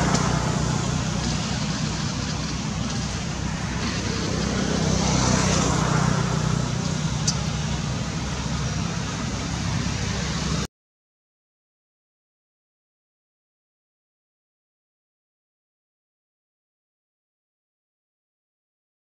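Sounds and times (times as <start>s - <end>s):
low engine hum: 0.0s - 10.7s
road traffic noise: 0.0s - 10.7s.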